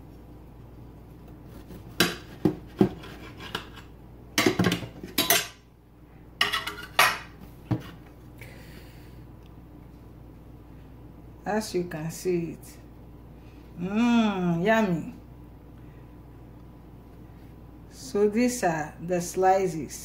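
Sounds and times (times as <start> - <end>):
knife scraping against a plate: 2.0 - 3.9, 6.4 - 7.2.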